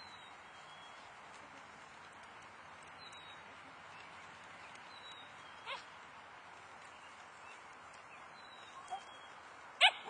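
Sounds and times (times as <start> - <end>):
faint outdoor hiss: 0.0 - 10.0
puppy yip: 9.8 - 10.0.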